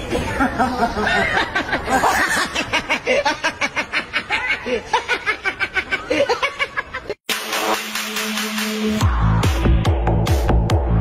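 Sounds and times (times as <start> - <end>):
person laughing: 0.1 - 7.2
electronic dance music: 7.3 - 11.0.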